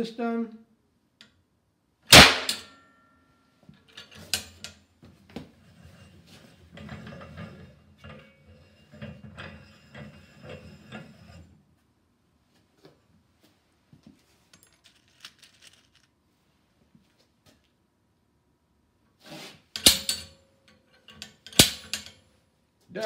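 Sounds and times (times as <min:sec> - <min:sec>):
metal mechanism rattling and scraping: 0:03.9 - 0:04.8, 0:05.6 - 0:11.6, 0:14.6 - 0:16.1, 0:19.6 - 0:22.2.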